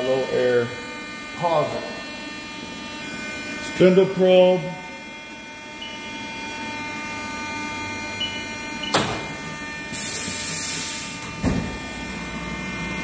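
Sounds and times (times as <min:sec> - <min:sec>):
machine humming: 0:00.0 - 0:13.0
sharp clunk: 0:08.8 - 0:09.3.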